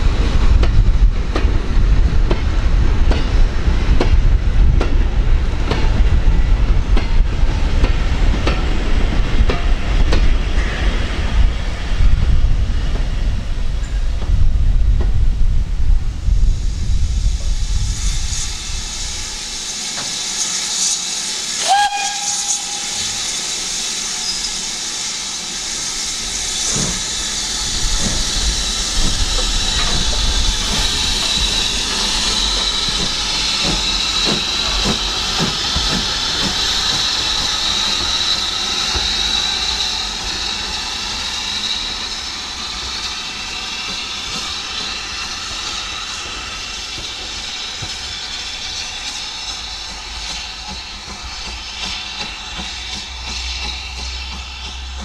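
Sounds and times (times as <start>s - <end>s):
steam locomotive hissing: 0.0s - 55.0s
steam whistle toot: 21.5s - 24.5s.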